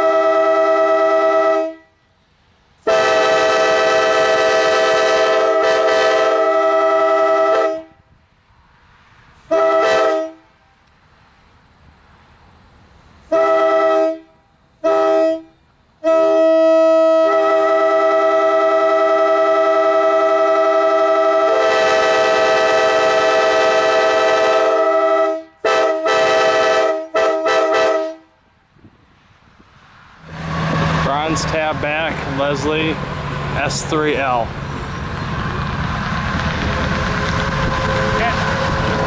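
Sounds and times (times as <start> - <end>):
locomotive air horn blasts: 0.0 - 2.1, 2.8 - 8.1, 9.4 - 10.5, 13.2 - 28.3.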